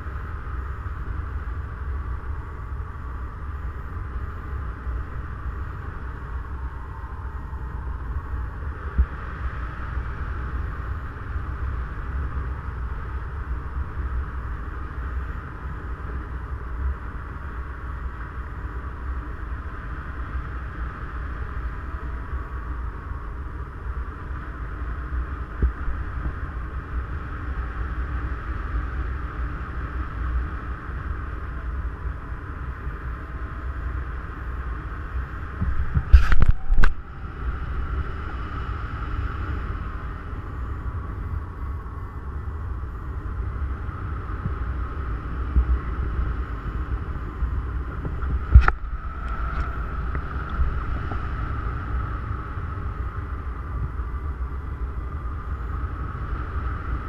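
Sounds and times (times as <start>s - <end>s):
wind buffeting microphone: 0.0s - 18.0s, 32.3s - 57.0s.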